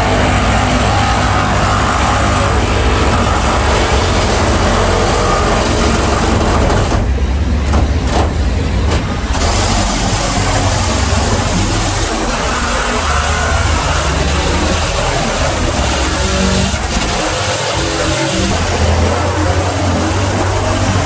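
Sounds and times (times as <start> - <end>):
diesel engines idling: 0.0 - 21.0
loud even hiss: 8.7 - 21.0.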